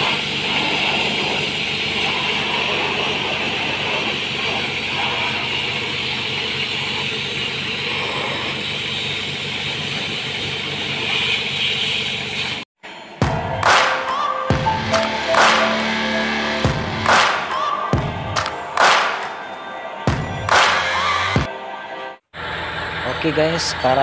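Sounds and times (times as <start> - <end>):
pressure washer jet hissing: 0.0 - 12.6
low machine hum: 14.6 - 18.6.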